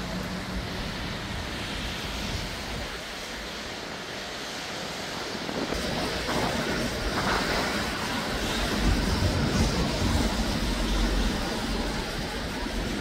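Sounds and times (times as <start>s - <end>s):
road traffic passing: 0.0s - 5.3s.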